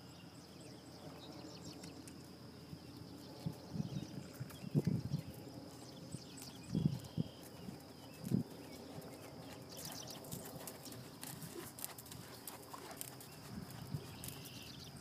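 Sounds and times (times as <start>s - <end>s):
horse hoofbeats on sand: 6.4s - 14.7s.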